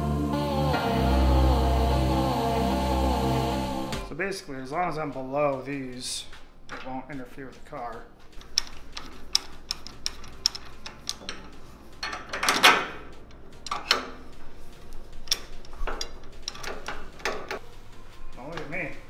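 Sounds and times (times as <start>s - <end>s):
metal parts clicking: 8.3s - 14.4s, 15.1s - 17.6s.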